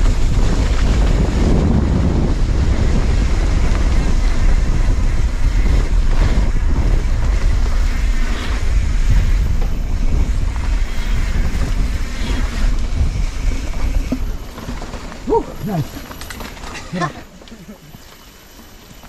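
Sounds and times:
wind buffeting microphone: 0:00.0 - 0:17.2.

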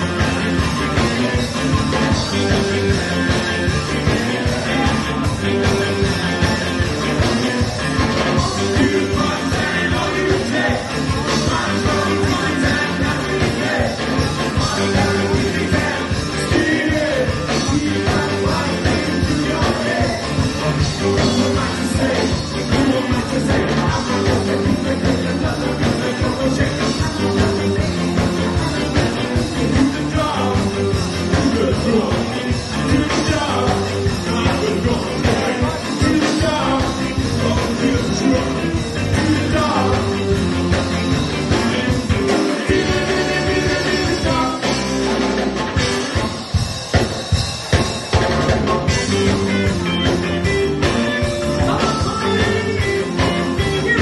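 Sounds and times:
person singing: 0:00.0 - 0:45.0, 0:48.6 - 0:54.0
live ska band playing: 0:00.0 - 0:54.0.

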